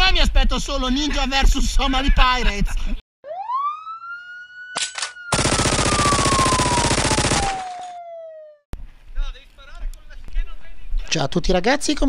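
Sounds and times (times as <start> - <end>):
falling siren-like whistling tone: 3.2 - 8.7
sharp click: 4.8 - 5.2
machine-gun fire: 5.3 - 7.9.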